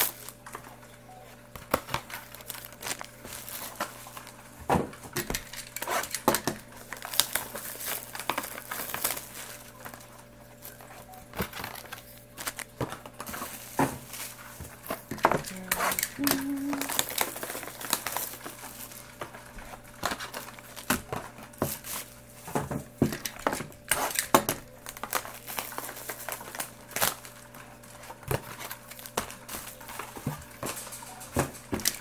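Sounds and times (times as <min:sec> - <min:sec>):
wrappers crinkling and rustling: 0:00.0 - 0:32.0
boxes tapping and scraping: 0:27.9 - 0:32.0.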